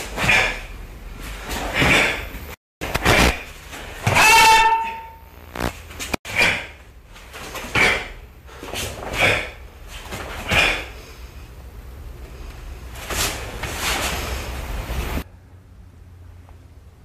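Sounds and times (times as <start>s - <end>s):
bare feet on mats: 12.9s - 14.6s.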